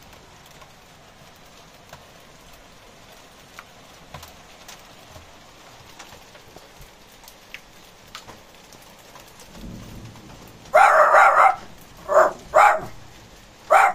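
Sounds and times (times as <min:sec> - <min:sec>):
steady rain: 0:00.0 - 0:13.9
faint thunder rumble: 0:09.3 - 0:13.9
dog barking: 0:10.7 - 0:13.9.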